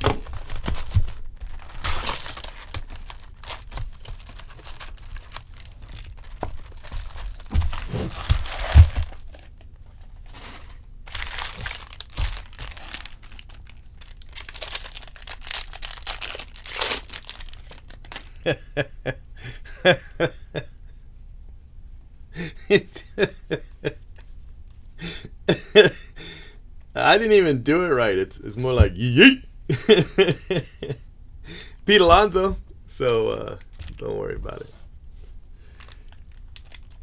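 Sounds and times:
plastic wrap crinkling and tearing: 0.0 - 18.5, 32.0 - 34.1, 35.7 - 37.0.

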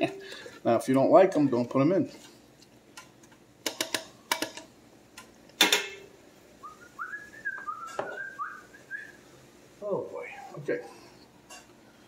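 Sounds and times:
spoon tapping steel pot: 3.6 - 4.6
whistled notes: 6.6 - 9.2.

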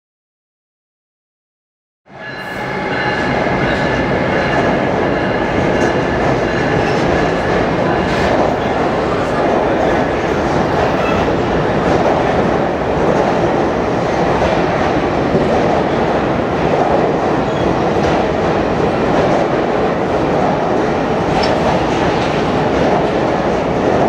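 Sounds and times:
train cars rolling on rails: 2.2 - 24.0.

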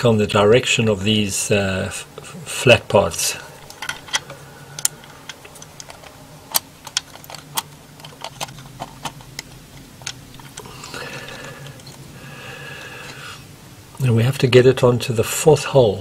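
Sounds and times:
small metal parts clicking: 3.6 - 12.0.

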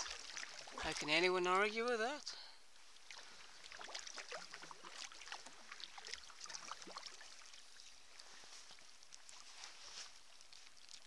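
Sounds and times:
water dripping off paddle: 0.0 - 1.1.

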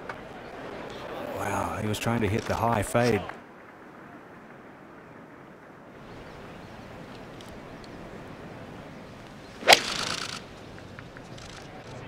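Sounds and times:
golf club striking ball: 9.6 - 10.4.

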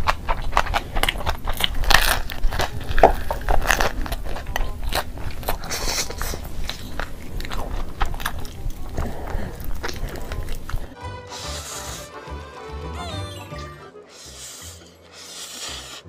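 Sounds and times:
person chewing food: 0.0 - 16.0.

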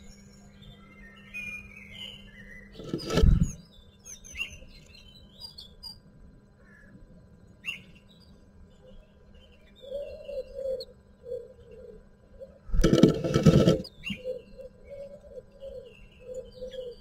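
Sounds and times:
loud bump and rustle: 12.7 - 13.9.

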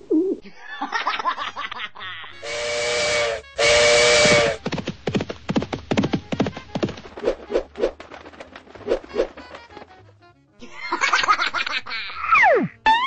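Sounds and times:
cartoon bird giggling: 10.6 - 13.0.

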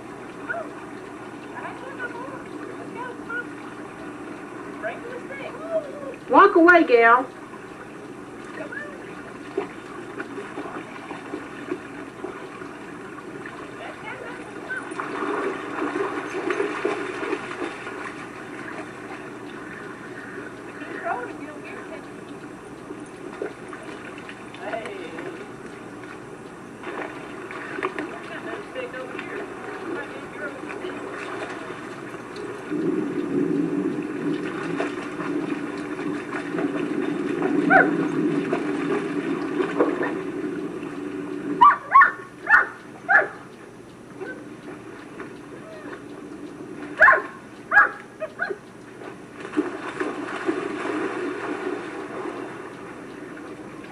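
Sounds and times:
dog wading through splashing water: 0.3 - 6.8, 7.6 - 43.5, 44.1 - 53.9
low rumble: 32.3 - 41.6
dog barking: 37.7 - 37.9, 41.6 - 43.4, 47.0 - 48.6.

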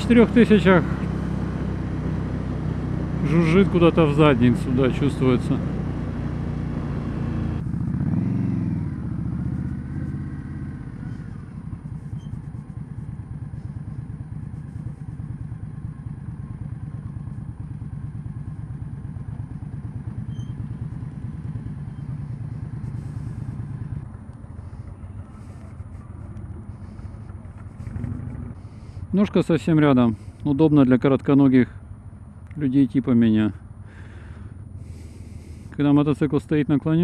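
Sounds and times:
motorcycle engine revving: 0.0 - 29.0.

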